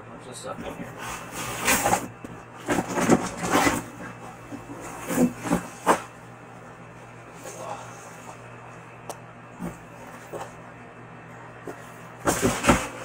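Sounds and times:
cardboard scraping: 0.9 - 6.2, 11.6 - 13.0.

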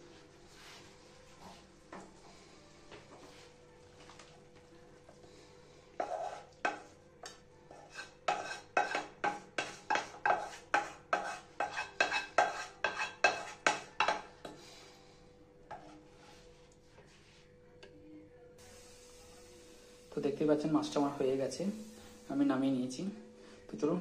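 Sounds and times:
spatula scraping frying pan: 6.0 - 6.9, 7.7 - 14.3.

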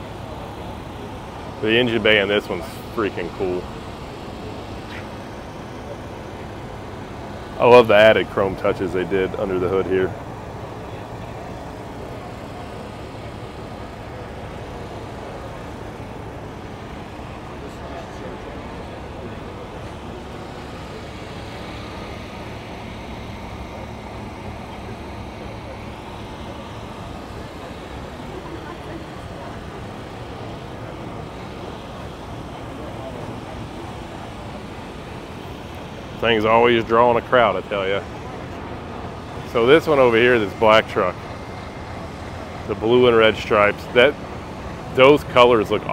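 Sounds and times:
outdoor background rumble and hiss: 0.0 - 45.9
faint talk of people: 8.4 - 36.3.

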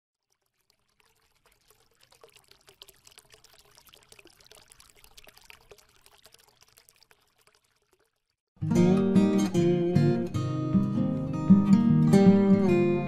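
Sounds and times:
water trickling and dripping: 0.2 - 8.5.

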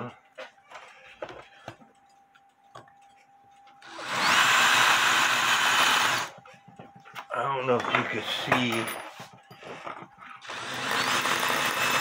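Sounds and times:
drill drilling into steel: 3.8 - 6.3, 10.4 - 12.0.

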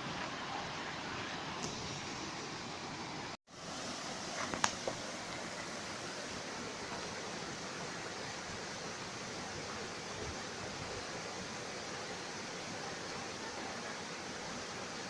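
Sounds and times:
stream splashing over rocks: 3.5 - 15.0.

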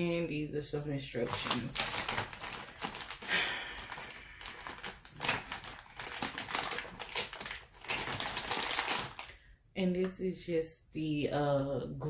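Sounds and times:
plastic bag crinkling: 0.8 - 9.4.

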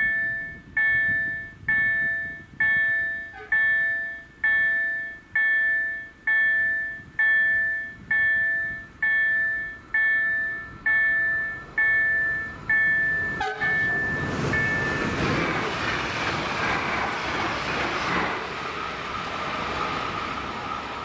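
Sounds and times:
level-crossing warning bells ringing: 0.0 - 15.8.

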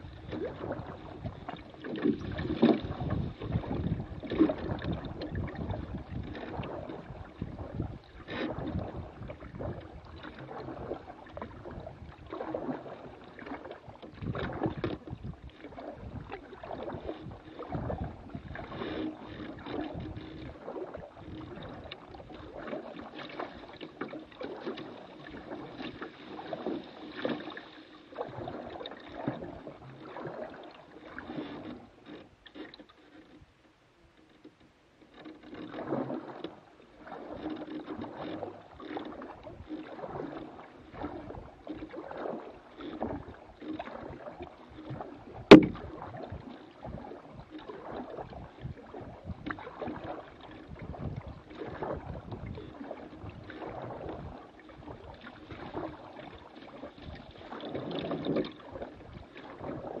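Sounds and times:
paddle splashing in water: 0.0 - 60.0
knocks against plastic hull: 45.5 - 46.0.

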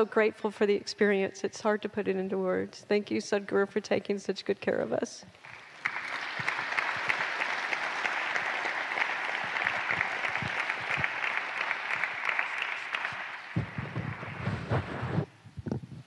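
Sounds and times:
audience applauding: 5.4 - 15.3.

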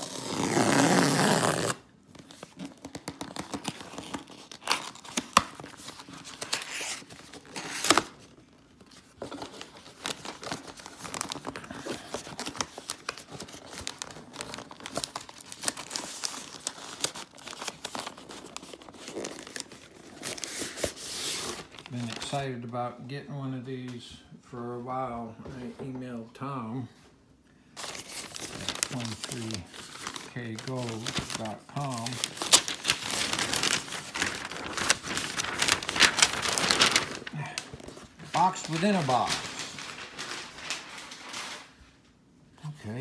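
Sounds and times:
cardboard ripping: 0.0 - 8.2, 27.8 - 40.8
cardboard and paper rustling: 0.0 - 22.6, 27.8 - 41.8.

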